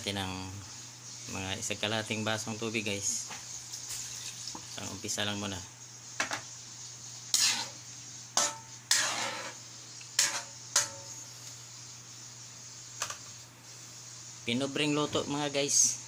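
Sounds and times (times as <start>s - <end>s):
metal ladle scraping a wok: 7.3s - 7.8s, 8.4s - 9.6s, 10.2s - 11.1s.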